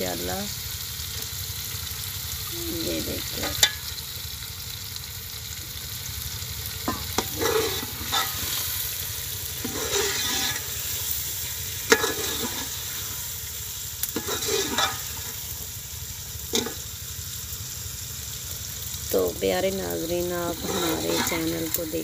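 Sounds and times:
curry sizzling: 0.0s - 22.0s
ladle stirring in metal pot: 6.8s - 8.7s, 9.5s - 13.2s, 14.1s - 15.4s, 20.5s - 21.8s.

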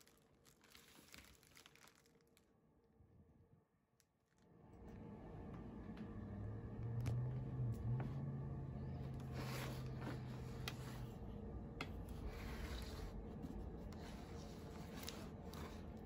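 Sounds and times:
low hum: 4.4s - 16.0s.

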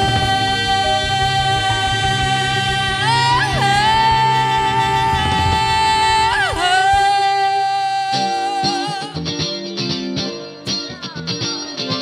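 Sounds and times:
long held guitar note: 0.0s - 9.2s
electric guitars playing funk riff: 0.0s - 12.0s.

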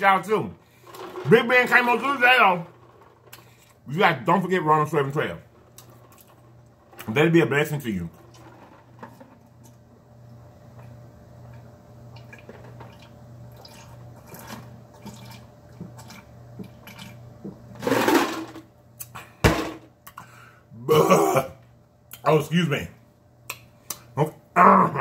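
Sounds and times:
man gulping a drink: 10.8s - 17.2s
loud burp: 20.8s - 21.6s.

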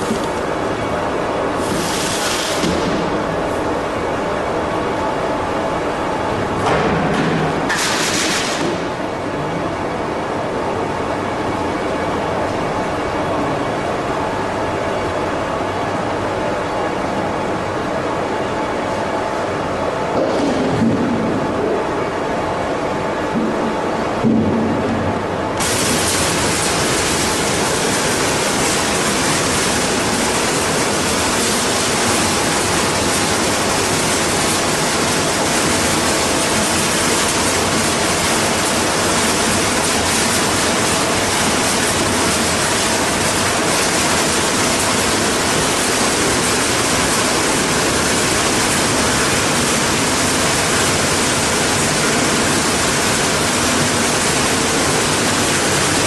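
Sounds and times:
sorting machine rushing hiss: 1.5s - 3.7s, 25.6s - 56.0s.

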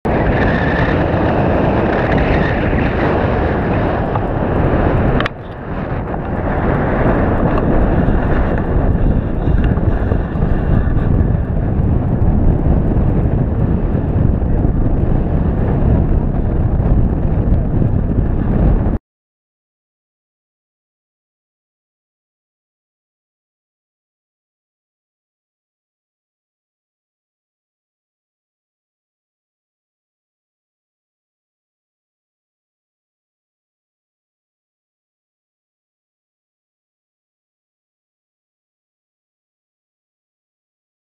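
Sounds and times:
wind buffeting microphone: 0.1s - 19.0s.

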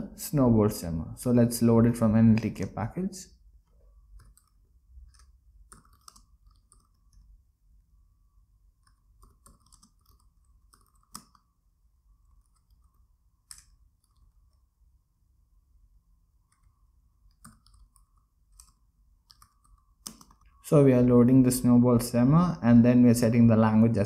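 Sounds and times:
keyboard typing clicks: 3.7s - 7.4s, 8.8s - 11.5s, 12.3s - 14.6s, 16.4s - 20.6s.

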